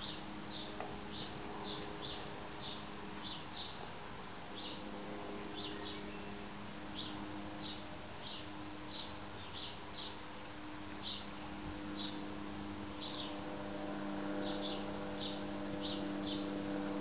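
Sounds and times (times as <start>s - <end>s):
bird chirping: 0.0s - 3.9s, 4.6s - 4.8s, 5.5s - 10.2s, 11.0s - 11.3s, 11.9s - 12.2s, 12.9s - 13.4s, 14.4s - 16.5s
faint low hum: 0.0s - 17.0s.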